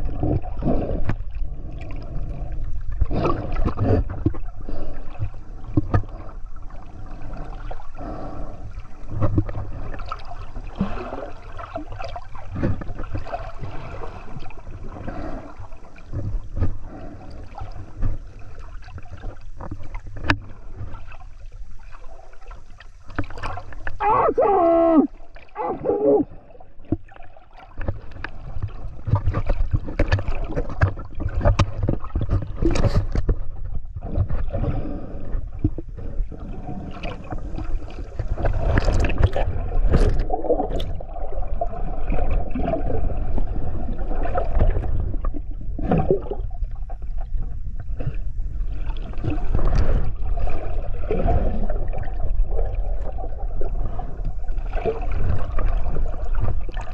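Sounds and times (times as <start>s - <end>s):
muffled underwater water movement: 0.0s - 56.9s.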